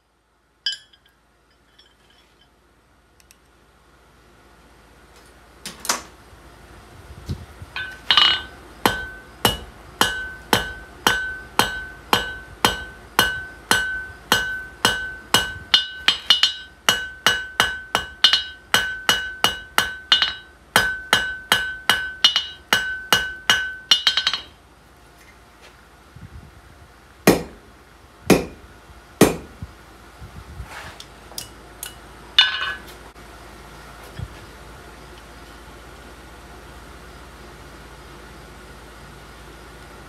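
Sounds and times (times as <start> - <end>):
anvil ringing ping: 0.7 - 1.1, 7.8 - 24.5
hammer striking steel on anvil: 0.7 - 1.1, 7.8 - 24.6, 27.3 - 27.6, 28.3 - 28.6, 29.2 - 29.6, 31.4 - 32.9.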